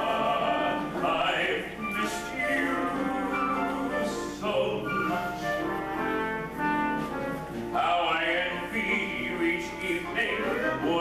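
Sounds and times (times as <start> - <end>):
theatre orchestra playing: 0.0 - 11.0.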